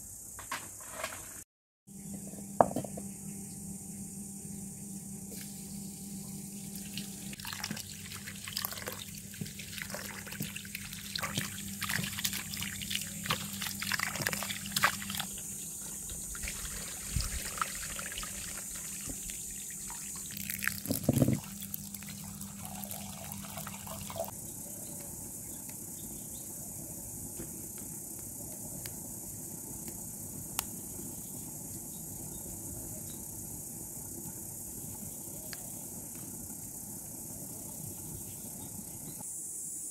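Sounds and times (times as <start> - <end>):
steady low hum: 1.9 - 39.5
water splashing and trickling: 6.6 - 24.3.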